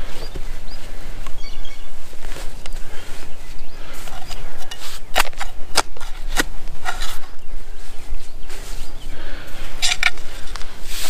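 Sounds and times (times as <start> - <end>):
spade scraping through dirt: 3.9 - 7.4, 9.6 - 11.0
spade striking ground: 4.0 - 7.4, 9.8 - 11.0.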